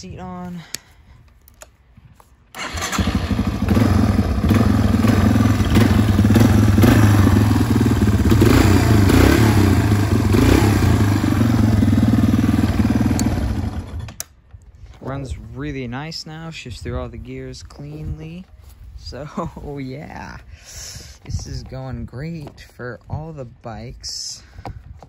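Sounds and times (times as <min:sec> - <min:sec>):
dirt bike engine running: 0:02.6 - 0:14.2.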